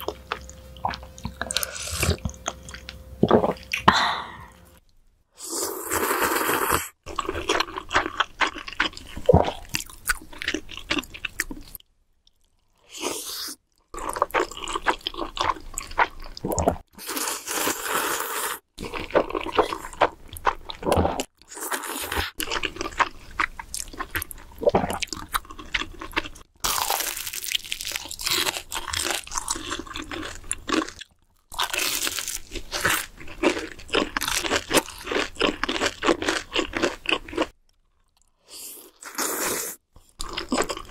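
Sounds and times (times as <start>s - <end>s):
slurping noodles: 5.4s - 7.3s, 16.5s - 19.9s, 38.6s - 39.8s.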